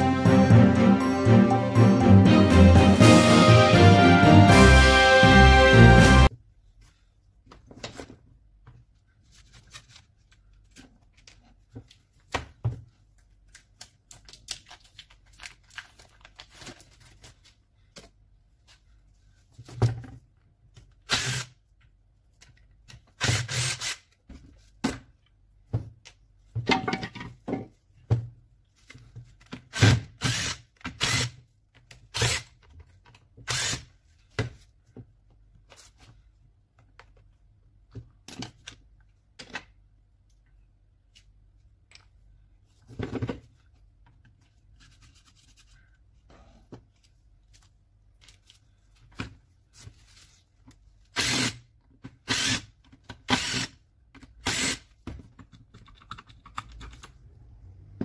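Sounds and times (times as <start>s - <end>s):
plastic and metal parts clacking: 55.0s - 57.2s.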